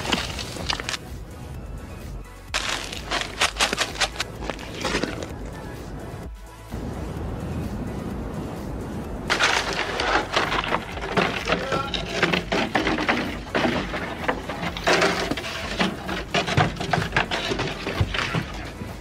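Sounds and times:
footsteps crunching on snow: 0:00.0 - 0:01.0, 0:02.5 - 0:05.6.

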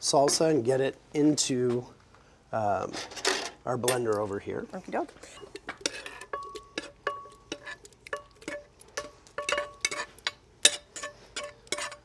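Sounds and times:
metal pan clinking and scraping: 0:05.2 - 0:12.0.

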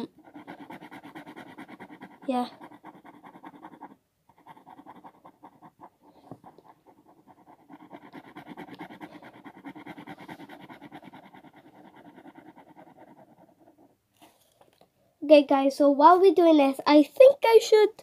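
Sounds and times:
pen scribbling on paper: 0:00.0 - 0:14.0.

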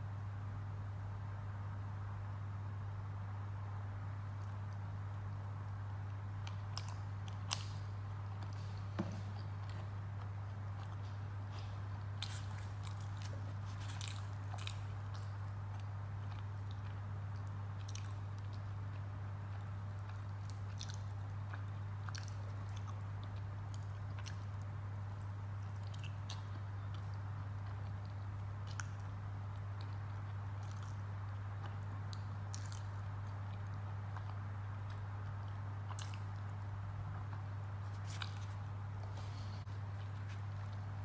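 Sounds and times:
steady low hum: 0:00.0 - 0:41.0
person chewing with wet smacks: 0:04.3 - 0:41.0.

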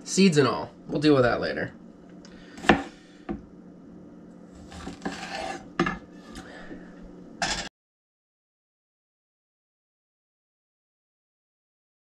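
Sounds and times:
knife chopping on wooden board: 0:02.6 - 0:03.4.

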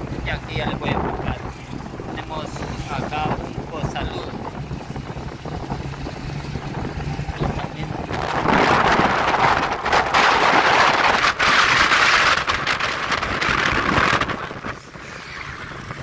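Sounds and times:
road noise: 0:00.0 - 0:16.0
wind rushing past vehicle: 0:00.0 - 0:16.0.

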